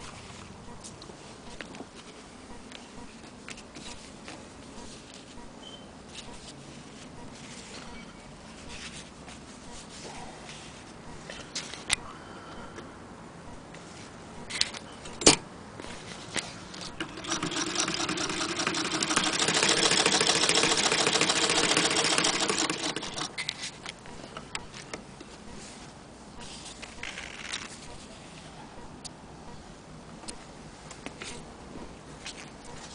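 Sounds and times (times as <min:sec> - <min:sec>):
sewing machine clatter: 0:16.9 - 0:23.4.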